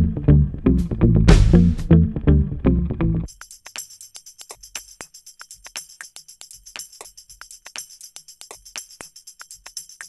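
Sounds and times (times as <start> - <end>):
background music: 0.0 - 3.3
jingling percussion: 3.3 - 10.0.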